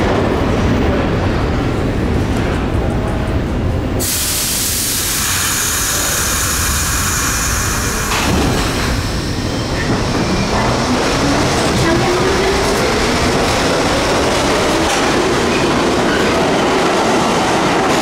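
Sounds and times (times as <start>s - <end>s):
subway train rumbling: 0.0s - 18.0s
air brakes hissing: 4.0s - 9.2s.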